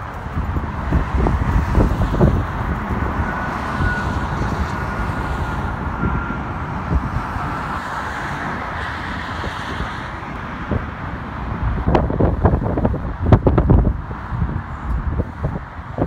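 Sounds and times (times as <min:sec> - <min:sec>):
faint jet engine whine: 0:00.0 - 0:11.3
steady outdoor rush: 0:00.0 - 0:16.0
wind rumbling on microphone: 0:00.0 - 0:16.0.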